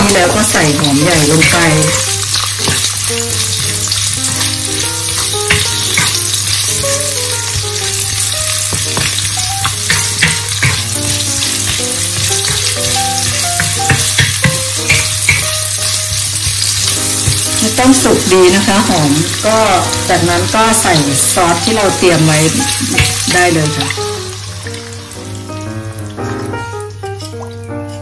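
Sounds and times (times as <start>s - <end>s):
spatula scraping and knocking pan: 0.0s - 18.8s, 27.0s - 28.0s
onion sizzling in hot oil: 0.0s - 28.0s.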